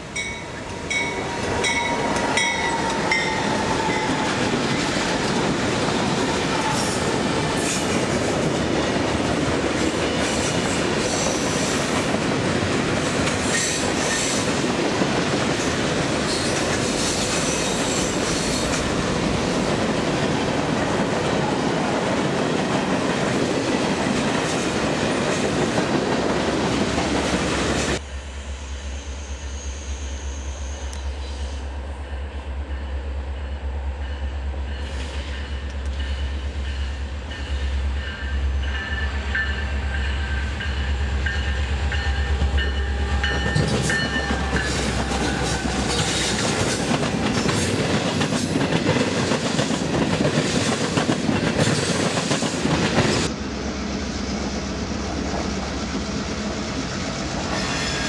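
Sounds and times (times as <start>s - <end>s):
freight train wheels on rails: 0.0s - 58.0s.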